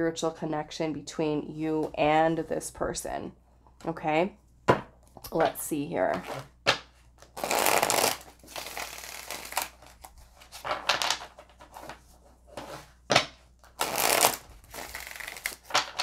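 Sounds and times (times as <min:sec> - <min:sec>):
cards rustling and sliding: 0:06.2 - 0:13.0, 0:13.6 - 0:16.0.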